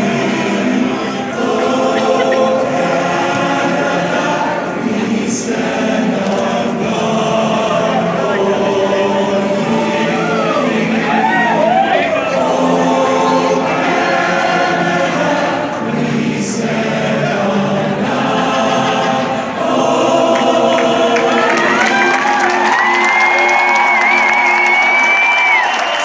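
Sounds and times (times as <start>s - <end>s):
men's chorus singing anthem: 0.0s - 24.8s
crowd cheering and clapping: 8.2s - 12.6s, 19.9s - 26.0s
long high whistle: 22.7s - 26.0s.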